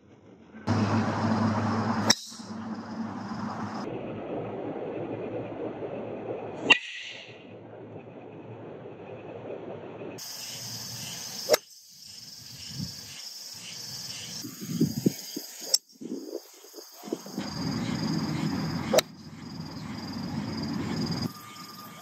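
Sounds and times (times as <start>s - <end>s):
insect chirring: 10.2s - 22.0s
low wind noise: 12.1s - 22.0s.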